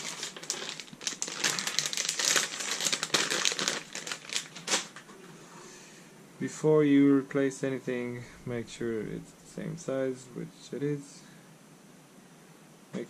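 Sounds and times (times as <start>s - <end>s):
plastic bag crinkling: 0.0s - 5.1s.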